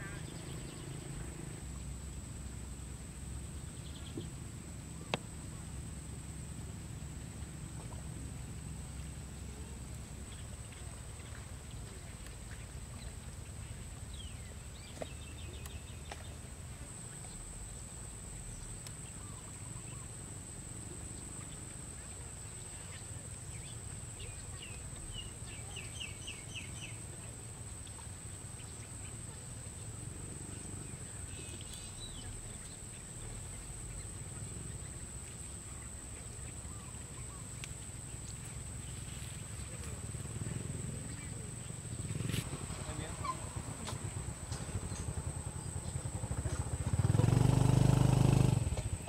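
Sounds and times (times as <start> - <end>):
faint bird chirps: 21.4 - 29.9, 30.5 - 47.1.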